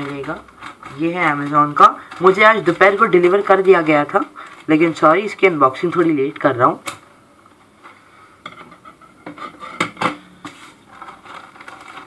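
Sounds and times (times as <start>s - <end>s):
plastic mailer bag crinkling: 0.0s - 6.4s, 10.6s - 12.0s.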